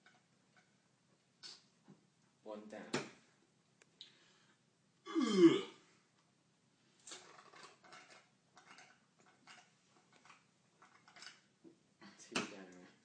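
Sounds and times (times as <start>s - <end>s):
loud belch: 5.1s - 5.8s
faint clicks and rustles: 6.9s - 13.0s.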